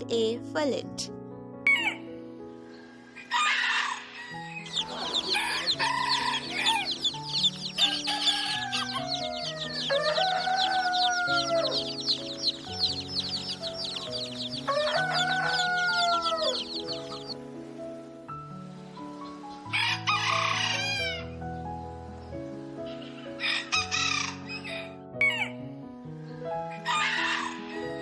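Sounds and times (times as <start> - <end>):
rooster crowing: 3.3 - 17.4, 19.7 - 21.2, 26.8 - 28.0
baby chicks peeping: 4.3 - 17.4
harsh chicken call: 4.7 - 17.3.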